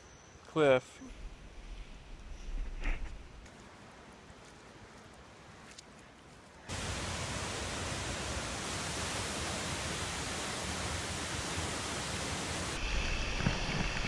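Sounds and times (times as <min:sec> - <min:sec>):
waterfall rushing: 0:06.7 - 0:12.8.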